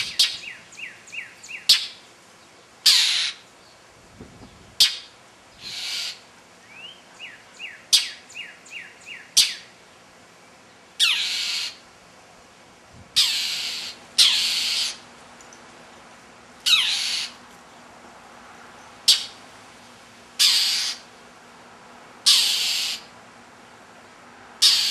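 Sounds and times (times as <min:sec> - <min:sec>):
bird harsh raspy calls: 0:00.0 - 0:02.1, 0:02.8 - 0:03.5, 0:04.8 - 0:09.7, 0:11.0 - 0:11.8, 0:13.2 - 0:15.1, 0:16.6 - 0:17.4, 0:19.0 - 0:19.4, 0:20.4 - 0:21.2, 0:22.2 - 0:23.1, 0:24.6 - 0:24.9.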